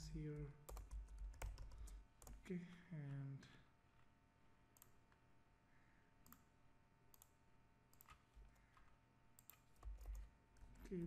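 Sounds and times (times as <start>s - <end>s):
low background hum: 0.0s - 11.0s
computer mouse clicks: 4.8s - 5.0s, 6.2s - 6.5s, 7.1s - 10.9s.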